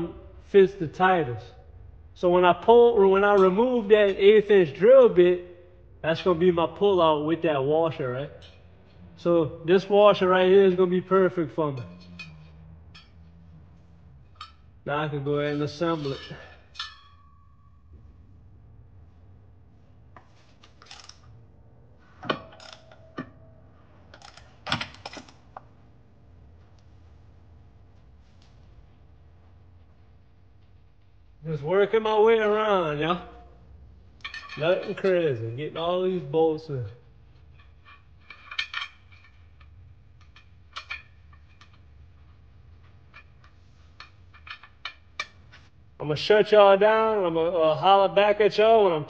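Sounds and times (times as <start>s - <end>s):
steady low hum: 0.0s - 49.0s
metal clinks of bolts and tools: 11.8s - 13.3s, 22.2s - 23.5s, 24.1s - 25.4s, 34.2s - 35.1s, 37.5s - 41.8s
small steel tools clinking: 11.8s - 13.3s.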